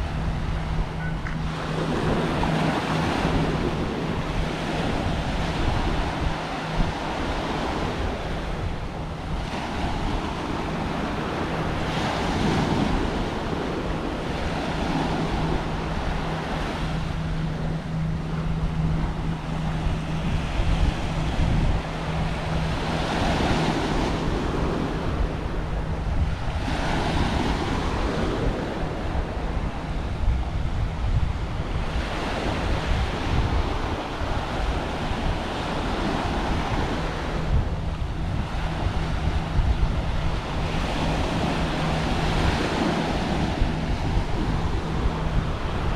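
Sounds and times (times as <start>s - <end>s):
steady low hum: 0.0s - 45.9s
wind rumbling on microphone: 0.0s - 45.9s
small waves breaking on shore: 31.5s - 45.9s.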